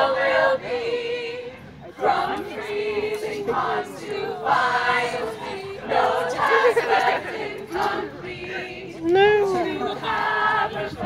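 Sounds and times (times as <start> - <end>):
a cappella group singing: 0.0 - 11.0.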